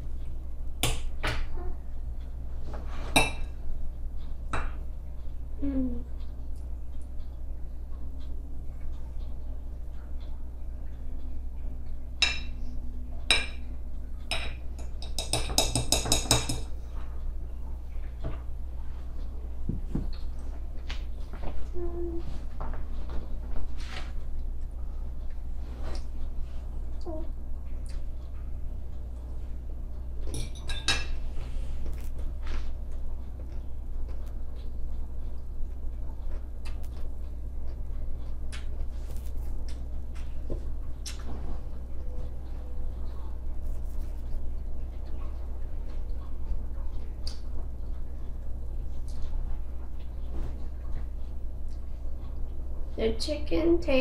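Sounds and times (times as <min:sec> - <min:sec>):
steady low hum: 0:00.0 - 0:54.0
cutlery clinking on ceramic plate: 0:14.3 - 0:16.7, 0:30.3 - 0:31.2.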